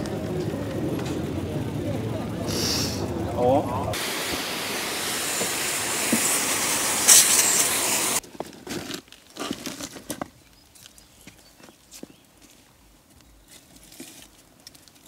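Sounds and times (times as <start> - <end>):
hose spraying water: 2.5 - 3.1, 3.9 - 8.2.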